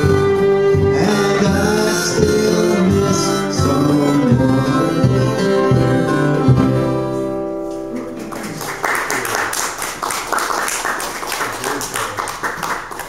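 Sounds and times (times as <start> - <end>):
audience applause: 7.9 - 13.0.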